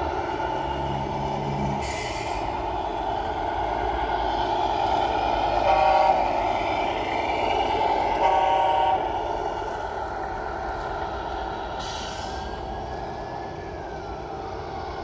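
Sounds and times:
short horn blasts: 5.6s - 6.3s, 8.2s - 9.1s.

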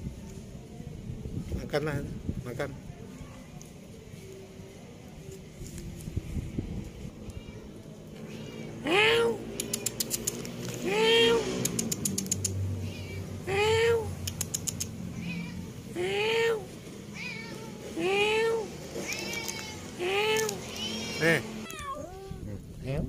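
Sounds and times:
cat meowing: 7.1s - 10.2s, 12.7s - 14.1s, 15.1s - 16.0s, 17.1s - 22.4s.

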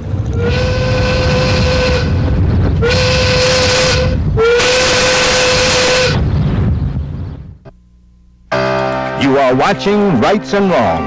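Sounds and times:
low rumble: 0.0s - 4.8s, 5.4s - 7.8s
loud whistle blasts: 2.8s - 6.2s.

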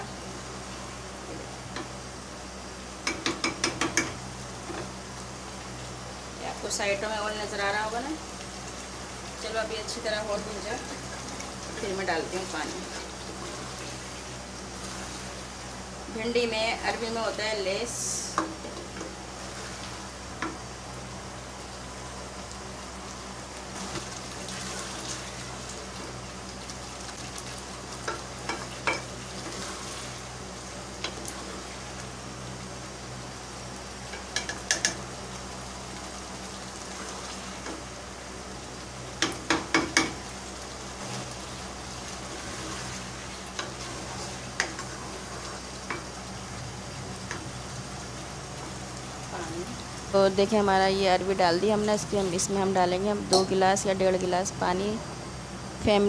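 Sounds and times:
curry sizzling in a pot: 0.0s - 56.0s
spoon knocking against pot: 3.0s - 4.2s, 39.2s - 40.2s.

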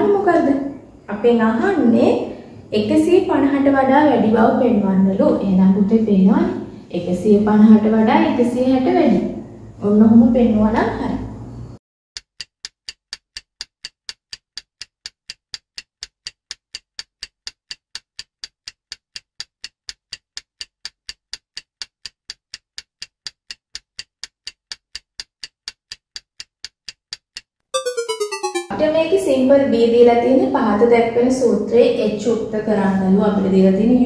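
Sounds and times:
stopwatch ticking: 12.2s - 27.5s
short falling tone: 27.8s - 28.8s.

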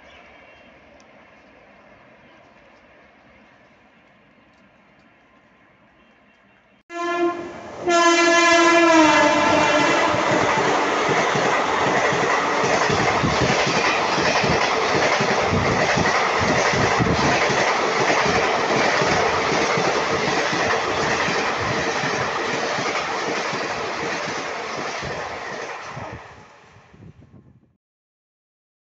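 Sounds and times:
train horn blasts: 6.9s - 10.4s
train wheels clattering: 9.2s - 25.8s.

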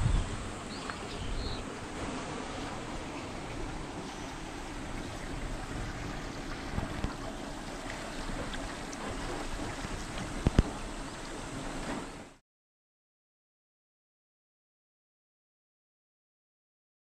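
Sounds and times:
wind on microphone: 0.0s - 12.3s
stony river rushing: 0.0s - 12.4s.

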